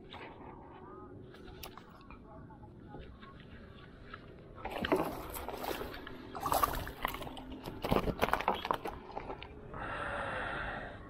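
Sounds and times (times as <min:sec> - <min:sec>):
fish splashing: 0:04.6 - 0:09.4
knocks and rattles against a boat: 0:04.6 - 0:09.4.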